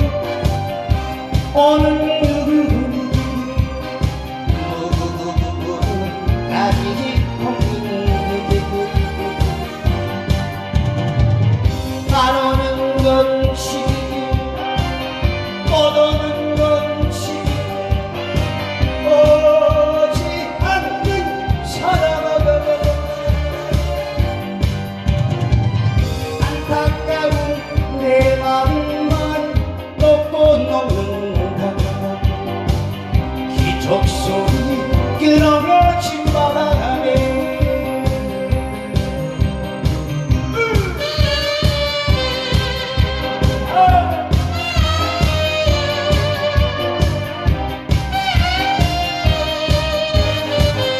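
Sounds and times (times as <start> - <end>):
man singing into a microphone: 0.0 - 10.4, 11.9 - 24.6, 26.2 - 47.2
amplified accompaniment with steady beat: 0.0 - 50.9.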